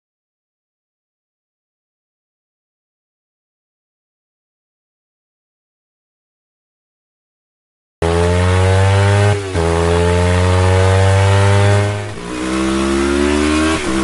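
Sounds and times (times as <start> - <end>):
engine accelerating through gears: 8.0 - 14.0.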